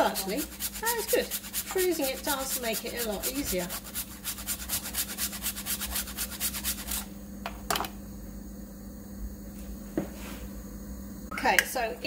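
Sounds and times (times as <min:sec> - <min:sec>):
ginger rasping on grater: 0:00.0 - 0:07.1.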